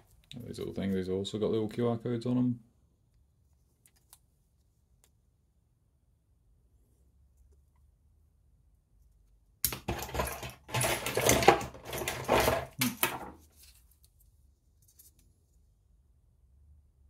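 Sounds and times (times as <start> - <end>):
small parts clattering on wood: 9.7 - 13.4.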